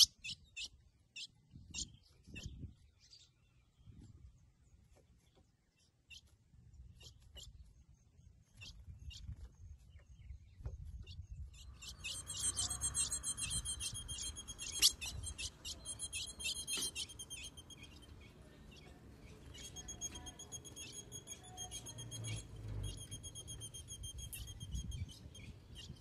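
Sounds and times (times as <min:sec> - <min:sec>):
bird calling: 0:11.6 - 0:26.0.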